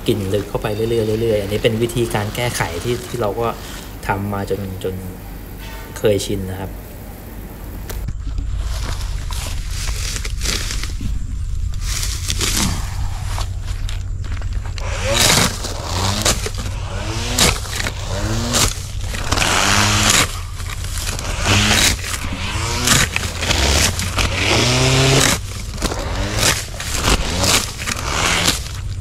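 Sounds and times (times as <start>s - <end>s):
electric grass trimmer cutting grass: 14.8s - 29.0s.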